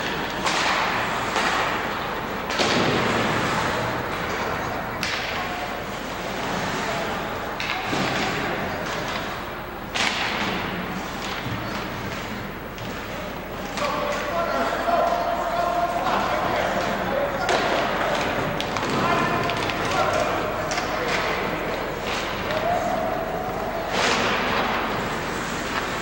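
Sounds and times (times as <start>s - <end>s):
hockey sticks and puck knocking: 0.0s - 6.2s, 16.0s - 26.0s
arena noise: 0.0s - 26.0s
distant voices: 0.0s - 26.0s.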